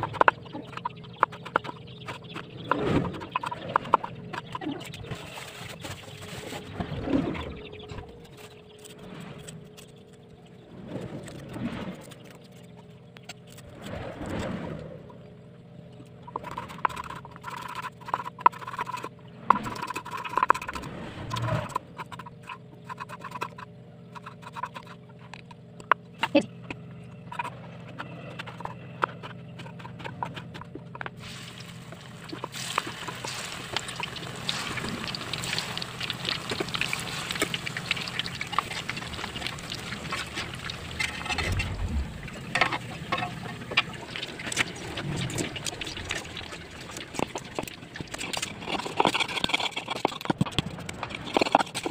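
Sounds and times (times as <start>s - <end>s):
frying sizzle with crackles: 31.2s - 41.3s.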